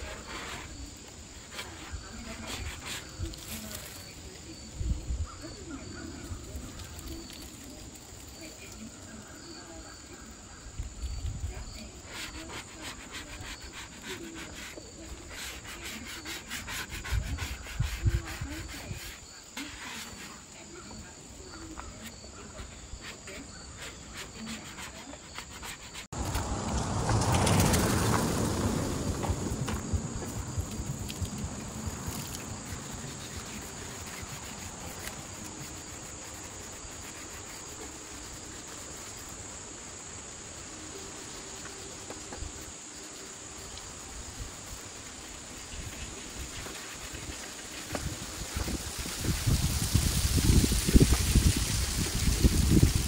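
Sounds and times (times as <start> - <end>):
pad rubbing on wood: 0.0 - 3.8, 11.8 - 20.5, 21.9 - 26.2, 32.6 - 39.3
insects chirping: 0.0 - 53.0.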